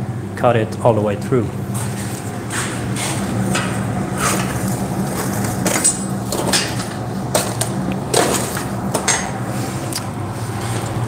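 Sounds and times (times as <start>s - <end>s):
steady low hum: 0.0s - 11.0s
iron bar and tongs clinking: 5.7s - 7.5s, 9.0s - 9.4s.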